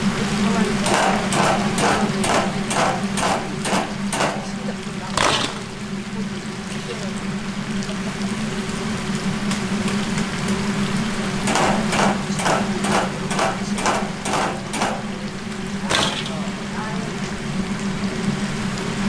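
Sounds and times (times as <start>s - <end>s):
chicken sizzling in hot oil: 0.0s - 19.0s
metal skimmer knocking on fryer: 0.8s - 4.6s, 11.4s - 15.3s, 15.9s - 16.6s.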